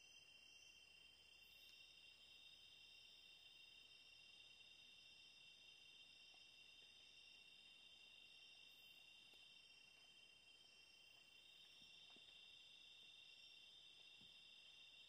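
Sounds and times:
night insects trilling: 0:00.0 - 0:15.0
faint ticks: 0:01.4 - 0:02.6, 0:06.0 - 0:08.0, 0:08.7 - 0:12.6.

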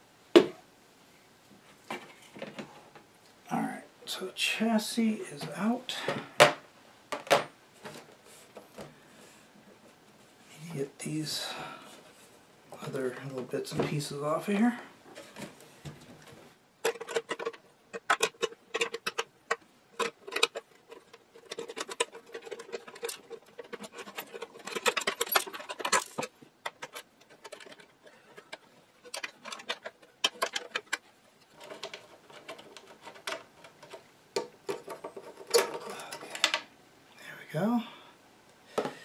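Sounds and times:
metal brackets and screws clicking: 0:16.8 - 0:36.6.

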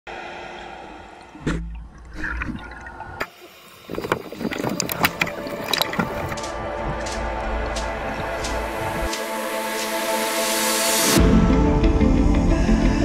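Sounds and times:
underwater gurgling: 0:00.9 - 0:09.1.

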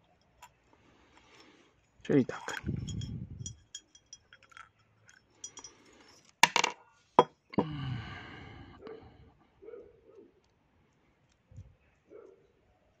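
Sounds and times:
small metal parts clinking: 0:01.2 - 0:06.8
parts knocking on table: 0:06.4 - 0:07.3.

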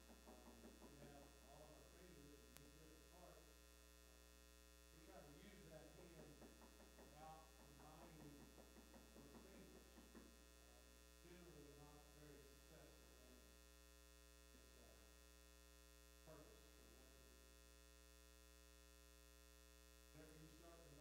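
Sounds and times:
faint indistinct talking: 0:00.0 - 0:03.6, 0:04.9 - 0:13.6, 0:14.5 - 0:15.1, 0:16.2 - 0:17.3, 0:20.1 - 0:21.0
electrical mains hum: 0:00.0 - 0:21.0.

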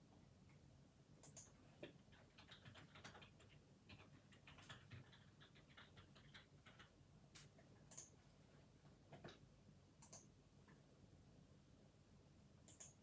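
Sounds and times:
computer mouse clicks: 0:01.2 - 0:08.2, 0:10.0 - 0:10.3, 0:12.7 - 0:13.0
keyboard typing: 0:01.2 - 0:08.2, 0:10.0 - 0:10.3, 0:12.7 - 0:13.0.

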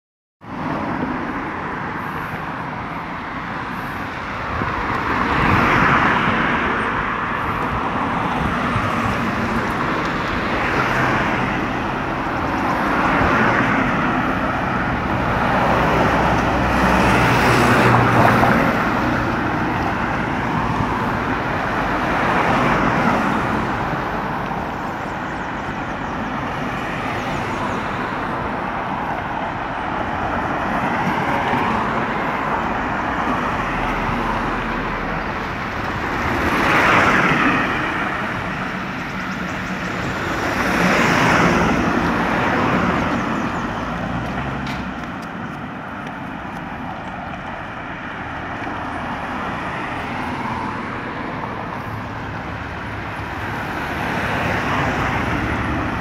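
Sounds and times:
cars driving past: 0:00.5 - 0:56.0.

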